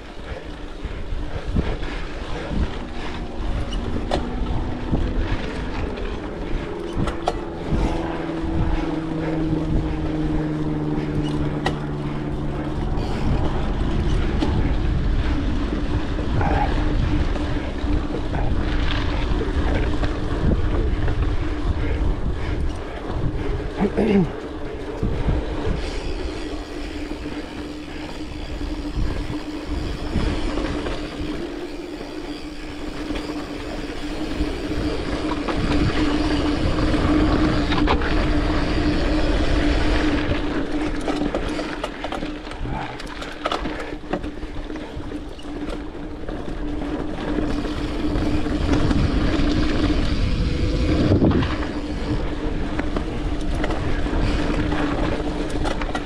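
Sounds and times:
steady hum: 0.0 - 43.2
bike tyres rumbling on dirt: 0.0 - 56.0.

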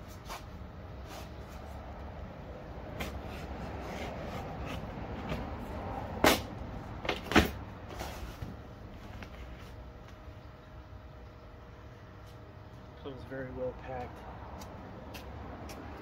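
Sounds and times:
cardboard rustling and scraping: 7.1 - 9.8.

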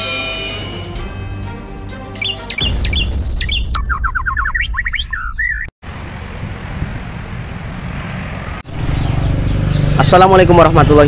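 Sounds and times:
bird chirping: 2.2 - 5.7, 8.4 - 10.2.

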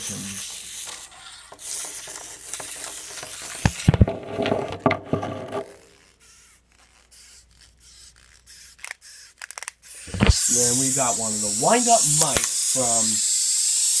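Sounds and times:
handling rubbing and scraping: 0.0 - 6.0
plastic clicks and knocks: 1.5 - 5.7.

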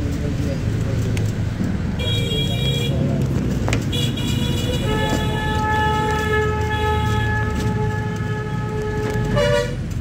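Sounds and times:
vehicle rumble: 0.0 - 10.0
lower vehicle horn: 3.9 - 9.9
high-pitched vehicle horn: 4.0 - 9.8.

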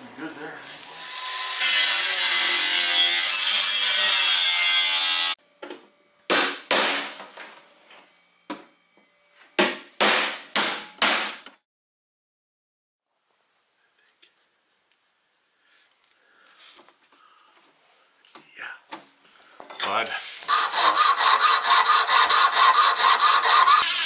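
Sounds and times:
angle grinder grinding metal: 0.6 - 5.4, 19.8 - 24.0
scraping strokes on metal: 19.8 - 24.0.

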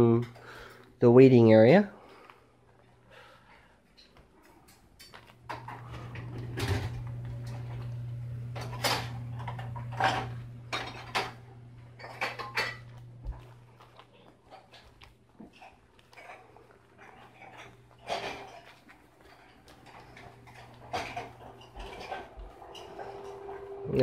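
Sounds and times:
steady low hum: 4.9 - 24.0
dishes and cutlery clinking: 8.6 - 24.0.

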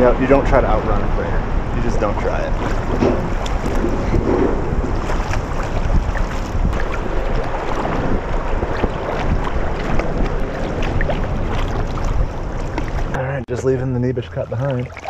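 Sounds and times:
wind on microphone: 0.0 - 13.2
paddle splashing and dripping: 2.5 - 13.2, 14.6 - 15.0.

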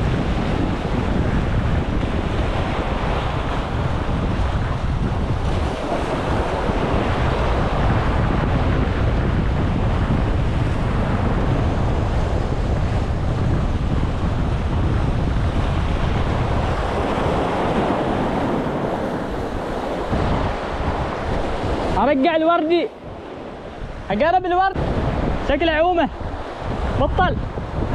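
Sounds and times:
sea waves breaking on concrete: 0.0 - 27.9
wind buffeting microphone: 0.0 - 27.9.

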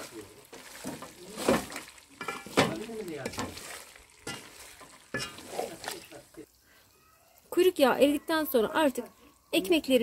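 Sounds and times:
wooden spoon scraping metal pot: 0.0 - 6.2
fat sizzling: 0.0 - 10.0.

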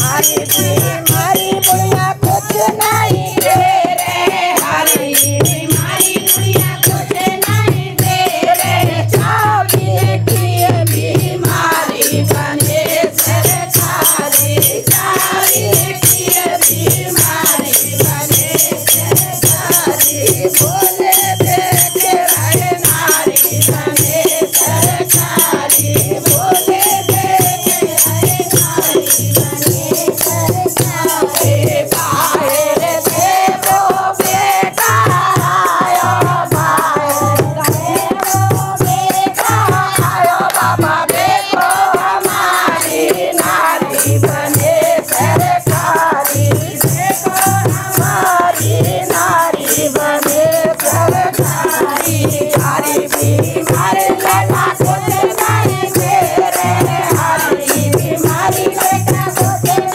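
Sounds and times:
hand cymbals clashing: 0.0 - 59.9
women singing in chorus: 0.0 - 59.9.

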